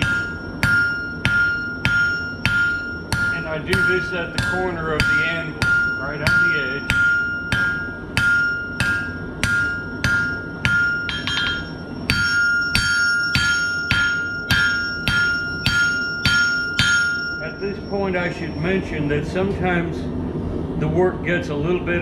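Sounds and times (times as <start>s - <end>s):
hammer striking steel on anvil: 0.0s - 19.0s
anvil ringing: 0.0s - 19.5s.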